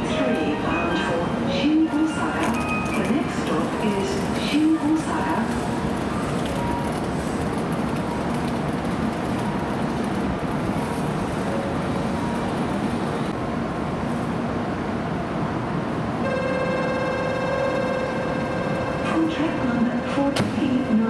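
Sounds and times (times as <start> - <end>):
train hum and hiss: 0.0 - 21.0
electronic ringing tone: 16.2 - 19.0.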